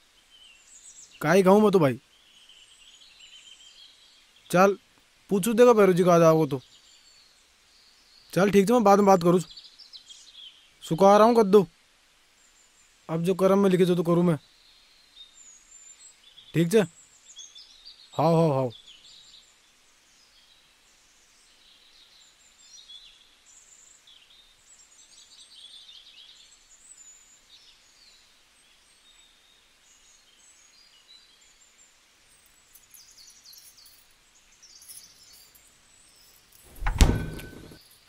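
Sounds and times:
faint birds chirping: 0.0 - 38.0
short loud thump: 36.7 - 37.8.

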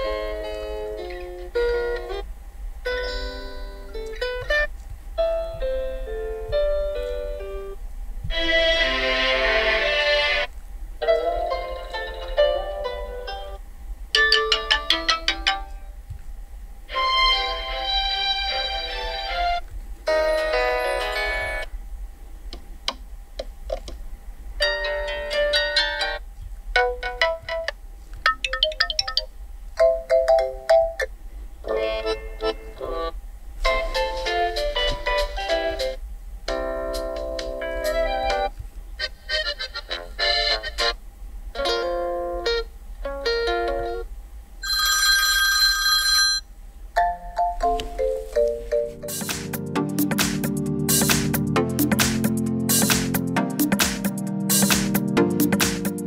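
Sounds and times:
ringtone melody from phone speaker: 28.4 - 31.0, 47.0 - 50.2
phone ringtone snippets: 44.6 - 46.4.

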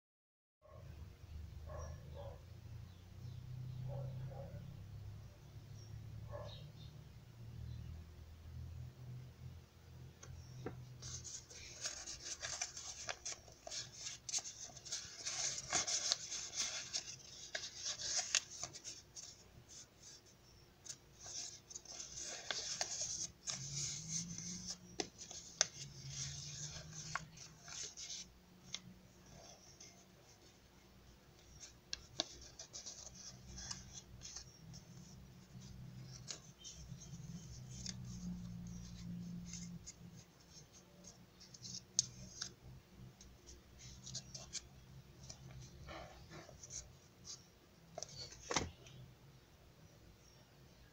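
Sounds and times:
paper rustling and crinkling: 11.0 - 20.2, 20.8 - 28.3.

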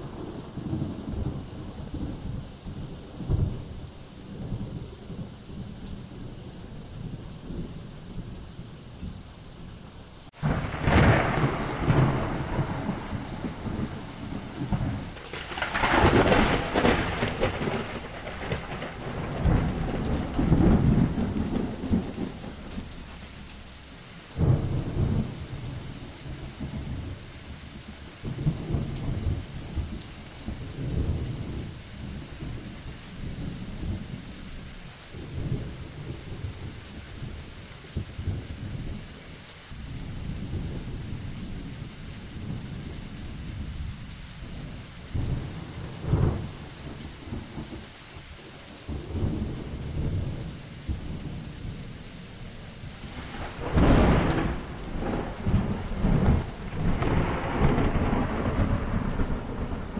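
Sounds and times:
steady rain: 0.0 - 59.9
thunder claps and rumbles: 10.4 - 27.2, 28.2 - 34.6, 35.2 - 39.1, 39.8 - 48.3, 48.9 - 52.0, 52.7 - 59.9.

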